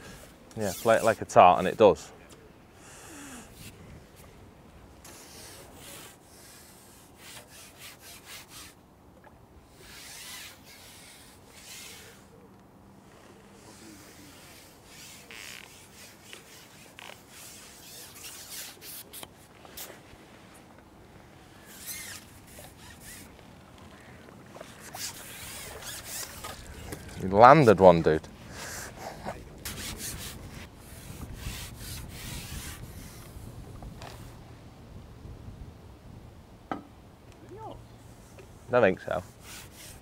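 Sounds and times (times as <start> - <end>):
rustling on microphone: 12.9 - 34.5.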